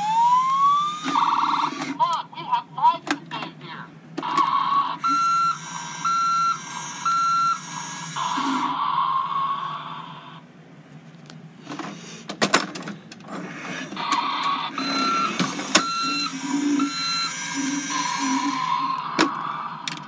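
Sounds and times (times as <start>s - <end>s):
mechanical hum from toy speaker: 0.0s - 10.6s, 11.2s - 20.0s
short beeps: 5.0s - 7.8s.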